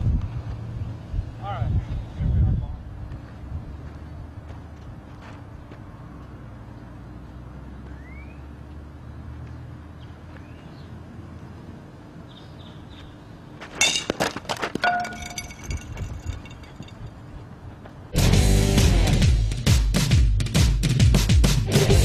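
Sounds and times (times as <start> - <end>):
crash of breaking glass: 14.8 - 16.9
heavy rock music: 18.2 - 20.0, 20.8 - 22.0.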